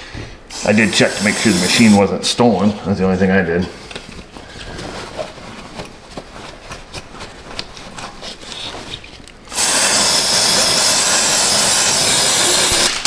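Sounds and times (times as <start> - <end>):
aerosol spray can hissing: 0.6 - 2.0, 9.6 - 12.8.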